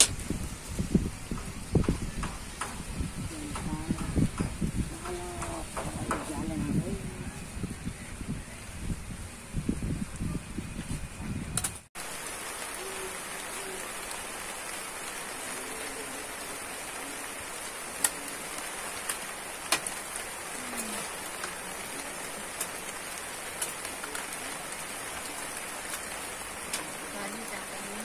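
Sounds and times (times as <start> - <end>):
light rain hissing: 0.0 - 28.0
raindrop tap: 1.2 - 6.8, 18.0 - 28.0.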